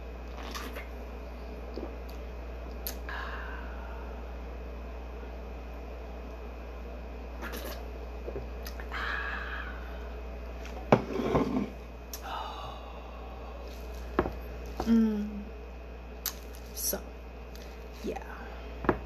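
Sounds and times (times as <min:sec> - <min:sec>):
woman grunting in disgust: 0:14.8 - 0:15.5.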